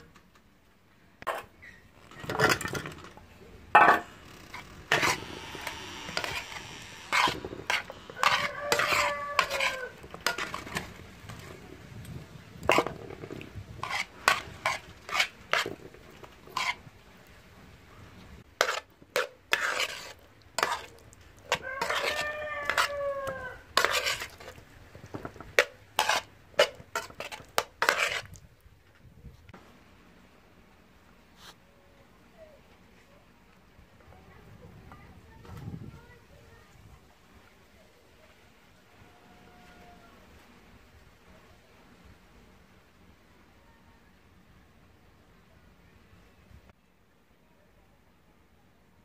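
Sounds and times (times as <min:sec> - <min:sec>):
metal spoon scraping a pan: 0:03.8 - 0:11.6, 0:12.6 - 0:16.9, 0:18.5 - 0:28.4
rooster crowing: 0:05.5 - 0:10.0, 0:21.5 - 0:23.7, 0:39.0 - 0:40.2.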